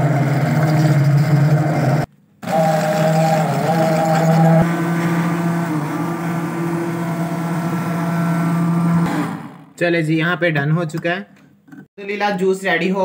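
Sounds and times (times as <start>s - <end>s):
stick blender running: 0.0s - 9.8s.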